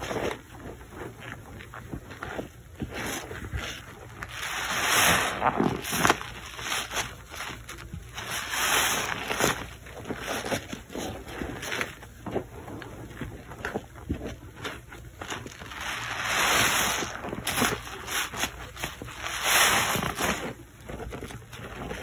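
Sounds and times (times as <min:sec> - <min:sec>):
wet squelching and sloshing: 0:00.0 - 0:22.0
hissing lather: 0:04.3 - 0:05.9.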